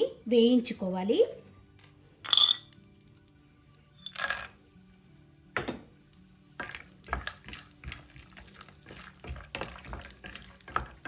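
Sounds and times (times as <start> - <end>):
nuts frying in hot fat: 6.0 - 11.0.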